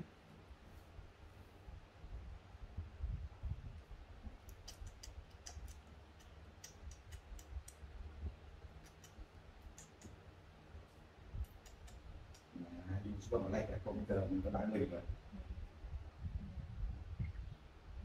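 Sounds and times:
mouth smacking on bottle teat: 4.3s - 7.8s.

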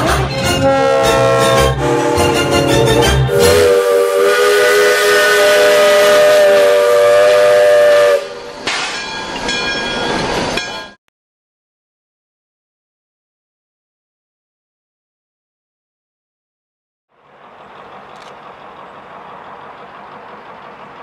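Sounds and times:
steam locomotive whistle blast: 0.6s - 8.7s.

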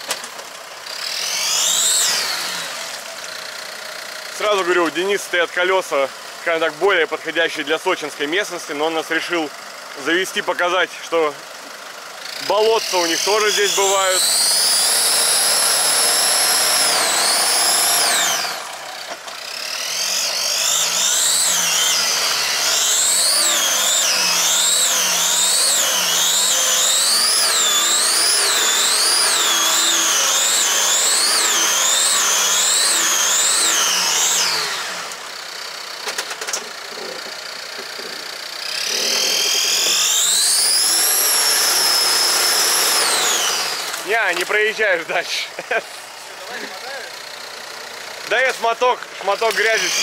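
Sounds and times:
engine revving with whine: 0.8s - 3.1s, 12.2s - 35.6s, 36.8s - 44.1s.

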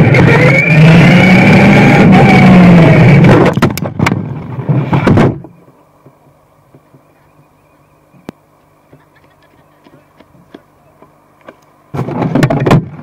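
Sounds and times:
rc car motor whining: 0.0s - 3.3s
tyre and road noise: 0.0s - 7.4s, 8.1s - 13.0s.

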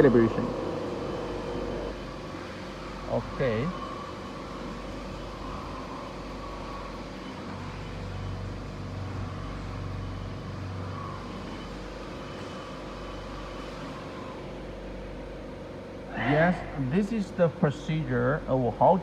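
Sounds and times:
low drone: 0.0s - 13.0s, 16.0s - 18.1s
machine humming: 0.0s - 19.0s.

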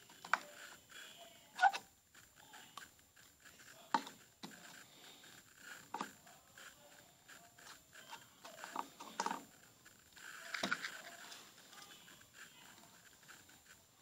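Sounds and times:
plastic cups clicking: 10.4s - 11.2s.

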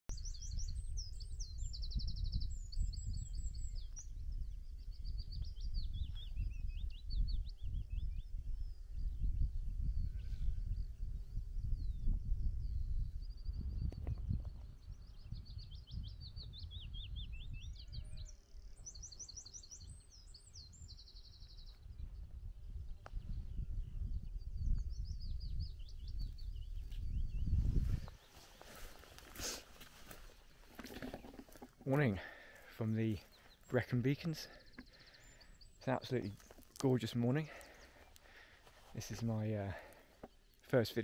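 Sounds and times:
wind rumble: 0.1s - 18.2s, 19.9s - 32.3s
songbirds singing: 0.1s - 41.0s.

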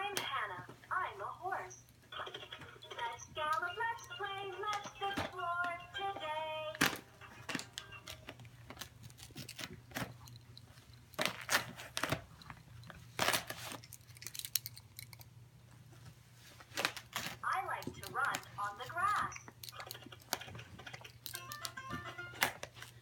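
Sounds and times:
dog ripping wrapping paper: 6.8s - 10.2s, 11.1s - 12.2s, 13.0s - 14.4s, 16.6s - 17.5s
person speaking: 17.4s - 19.5s.

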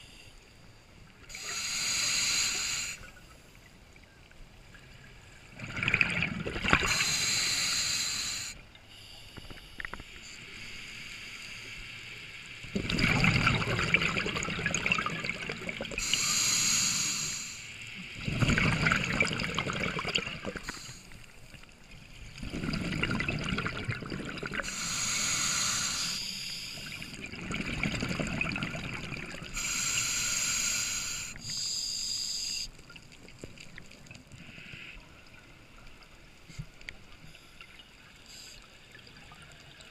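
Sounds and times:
hissing regulator inhalations: 1.3s - 3.2s, 6.8s - 11.8s, 15.9s - 17.8s, 20.5s - 21.3s, 24.5s - 27.2s, 29.4s - 32.8s
bubbling exhalations: 5.6s - 7.0s, 12.7s - 16.1s, 18.2s - 20.8s, 22.4s - 24.8s, 26.9s - 29.6s.

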